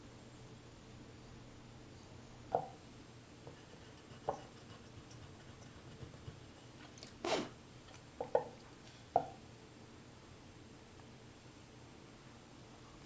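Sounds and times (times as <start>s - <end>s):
mug knocking on wooden board: 2.5s - 2.8s, 8.2s - 8.5s, 9.2s - 9.4s.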